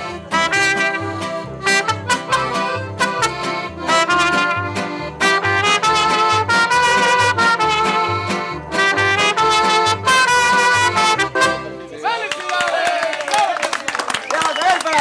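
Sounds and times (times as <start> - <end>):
strummed guitars: 0.0 - 11.9
trumpet melody: 0.0 - 11.9
bass guitar notes: 0.0 - 12.0.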